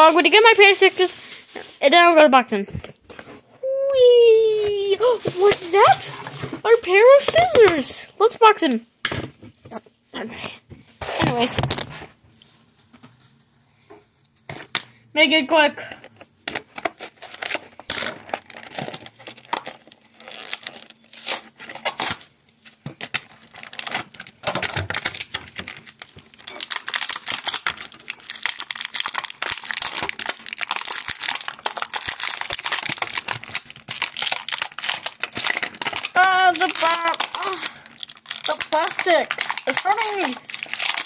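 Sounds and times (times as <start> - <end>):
plastic packaging crackling and tearing: 0.0 - 2.0, 4.8 - 7.9, 16.5 - 41.0.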